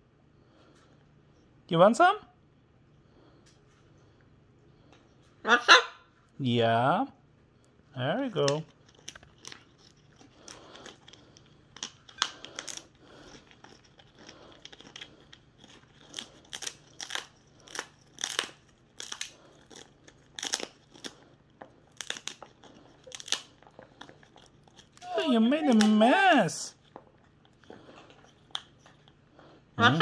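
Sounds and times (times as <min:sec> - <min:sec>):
parrot crunching food: 0:07.5 - 0:30.0.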